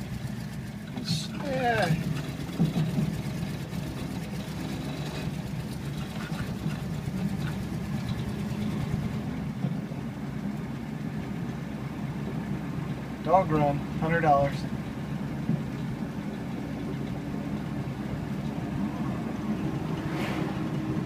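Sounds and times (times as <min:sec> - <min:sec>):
car engine drone from inside: 0:00.0 - 0:21.0.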